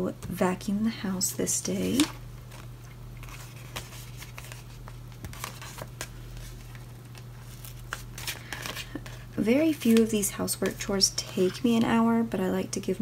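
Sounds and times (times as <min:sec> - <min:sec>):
paper rustling: 0:01.7 - 0:11.6.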